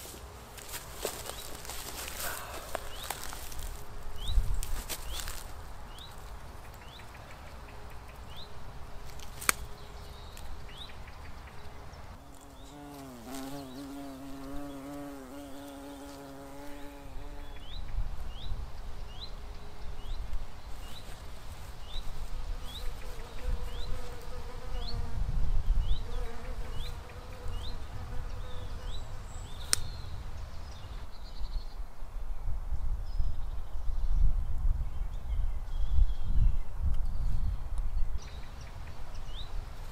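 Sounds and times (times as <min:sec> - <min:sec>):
wind rumble on microphone: 0:03.0 - 0:06.0, 0:21.8 - 0:27.0, 0:27.9 - 0:39.9
bird chirping: 0:09.6 - 0:21.1
flying insect buzzing: 0:12.2 - 0:17.7
higher insect buzz: 0:12.2 - 0:17.8, 0:21.9 - 0:29.1.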